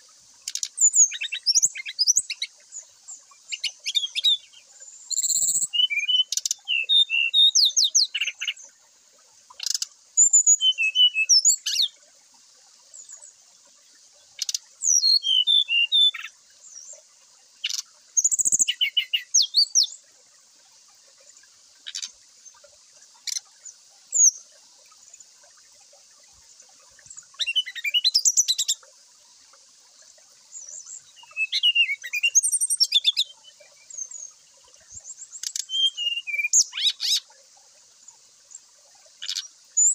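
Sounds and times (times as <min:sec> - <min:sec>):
bird singing whistles and trills: 0:00.5 - 0:08.6, 0:09.6 - 0:12.0, 0:14.4 - 0:17.0, 0:17.6 - 0:20.0, 0:27.0 - 0:28.8, 0:30.5 - 0:37.2, 0:39.2 - 0:39.9.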